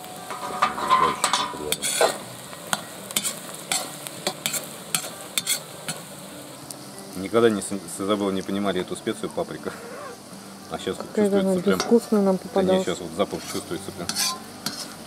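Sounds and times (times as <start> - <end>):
frying sizzle: 0.0 - 15.0
metal skimmer scraping iron pot: 0.2 - 2.2, 13.3 - 15.0.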